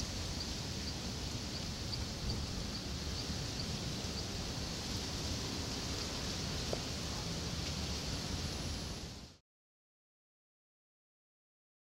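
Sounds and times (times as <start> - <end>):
steady hiss and low rumble: 0.0 - 9.4.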